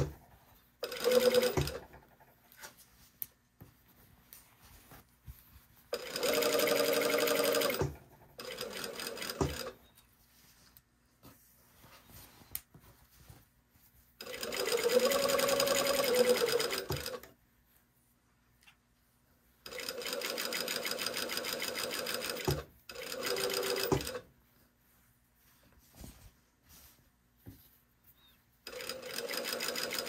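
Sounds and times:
sewing machine stitching: 0:00.8 - 0:02.3, 0:05.9 - 0:09.8, 0:14.2 - 0:17.3, 0:19.7 - 0:24.2, 0:28.7 - 0:30.0.

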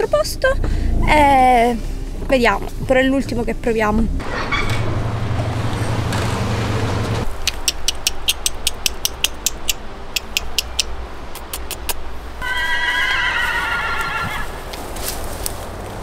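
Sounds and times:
sharp high ticks: 0:07.4 - 0:12.0
horse whinnying: 0:12.4 - 0:14.6.

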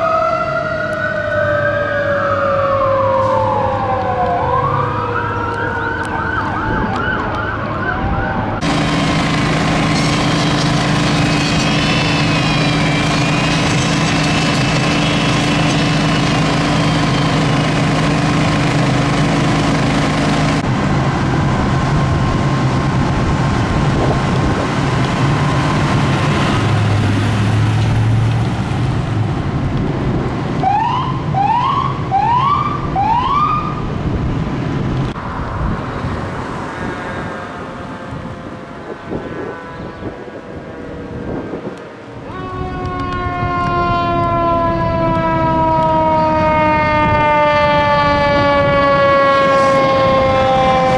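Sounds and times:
siren whooping: 0:00.0 - 0:08.9, 0:09.9 - 0:18.7, 0:30.6 - 0:34.0, 0:42.1 - 0:50.9
fire engine siren: 0:00.0 - 0:34.2, 0:35.1 - 0:50.9
engines running: 0:08.5 - 0:32.2.

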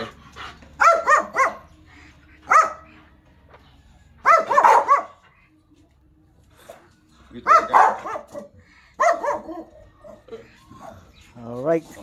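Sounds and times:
dog barking sharply: 0:00.8 - 0:01.6, 0:04.3 - 0:05.1, 0:07.4 - 0:09.7.

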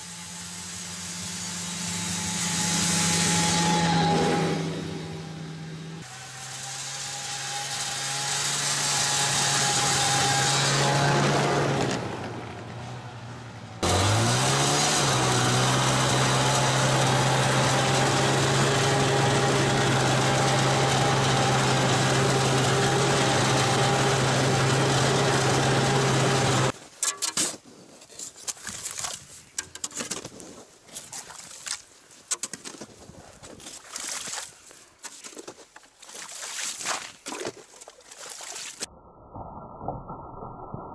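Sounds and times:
snowmobile engine: 0:00.0 - 0:26.8
shovel digging in snow: 0:27.0 - 0:38.9.

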